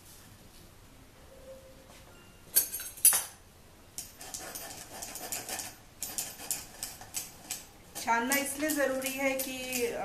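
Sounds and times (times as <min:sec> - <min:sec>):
spoon scraping flour through sieve: 0:04.0 - 0:10.0.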